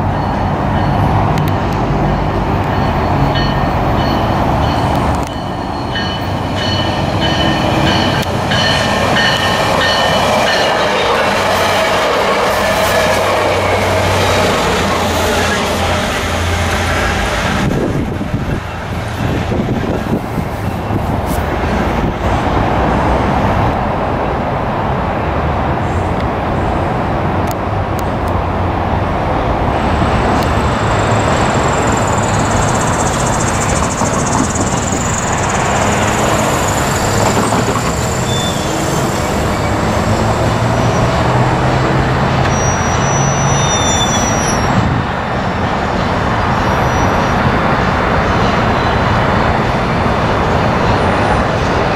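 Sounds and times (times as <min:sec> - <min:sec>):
vehicle and rail traffic rumble: 0:00.0 - 0:51.9.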